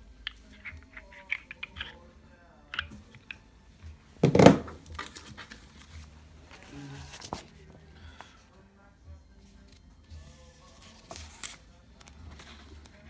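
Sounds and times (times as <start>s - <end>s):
paper handling: 4.8s - 8.3s, 10.6s - 13.0s.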